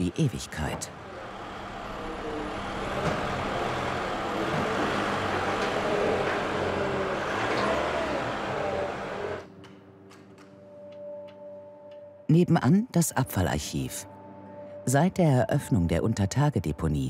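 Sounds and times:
forklift engine running: 0.0 - 9.5.

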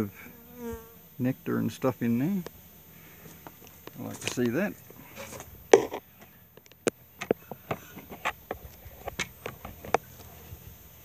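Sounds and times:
handling knocks and clicks: 5.2 - 10.3.

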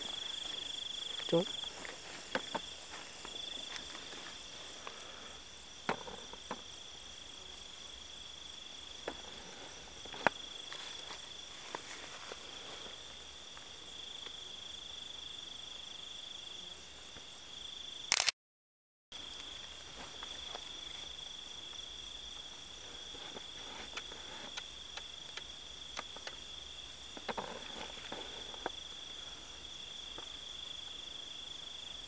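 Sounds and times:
clicks and rustles in grass: 0.0 - 5.2, 9.0 - 14.4, 22.8 - 29.0
crickets trilling: 0.0 - 18.2, 19.1 - 32.0.

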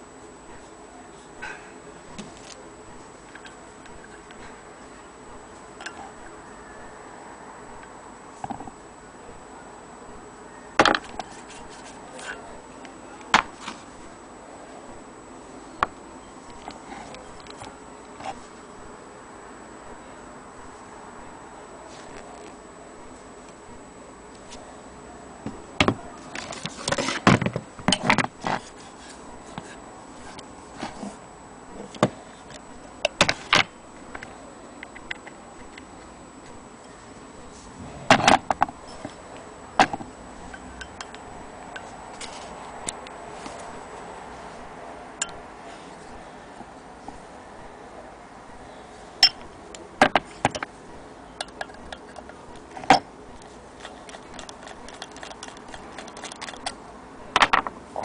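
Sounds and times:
steady low hiss: 0.0 - 58.0
handling noise: 37.4 - 47.8, 49.2 - 57.8.

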